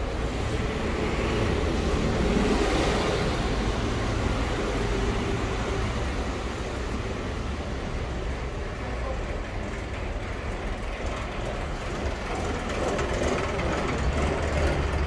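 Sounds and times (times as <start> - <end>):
car passing: 0.0 - 8.5.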